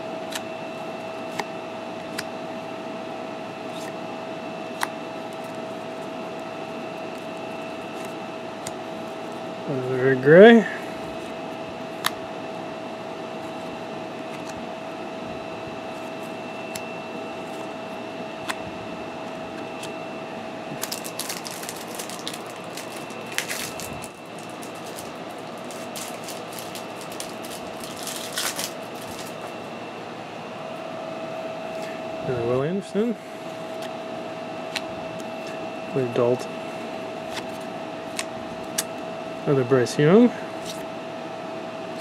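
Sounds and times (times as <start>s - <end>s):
thin constant whine: 0.0s - 42.0s
background hum: 3.3s - 40.8s
paper cards shuffling: 20.7s - 29.5s.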